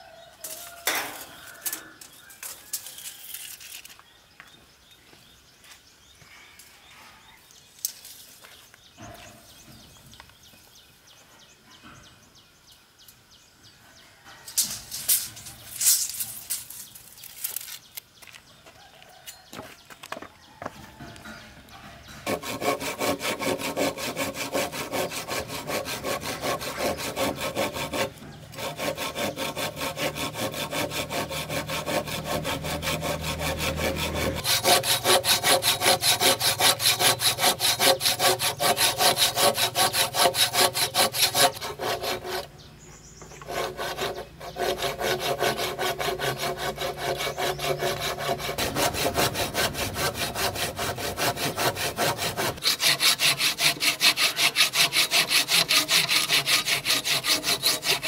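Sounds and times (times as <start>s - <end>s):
hand saw cutting wood: 22.0s - 42.6s, 43.3s - 58.0s.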